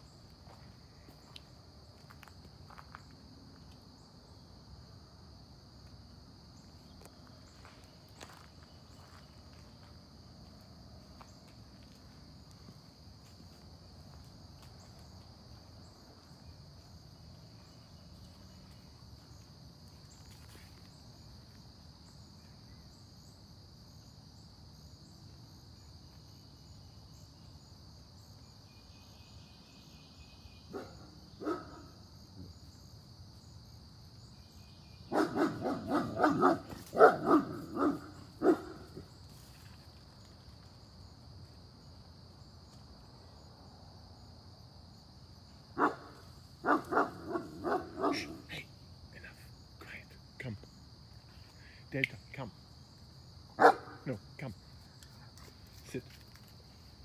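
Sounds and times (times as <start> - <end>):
high insect drone: 0.0 - 57.0
dog barking: 30.7 - 32.0, 35.1 - 39.1, 45.8 - 48.6, 53.6 - 54.2.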